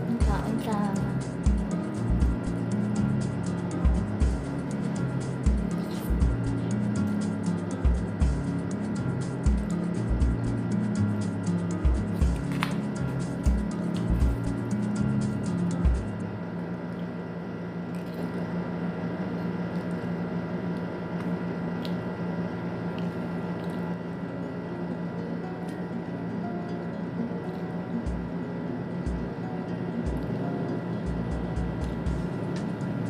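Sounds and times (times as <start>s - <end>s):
background music with beat: 0.0s - 16.3s, 27.9s - 33.0s
electrical hum: 0.0s - 33.0s
soft chewing: 22.9s - 24.0s.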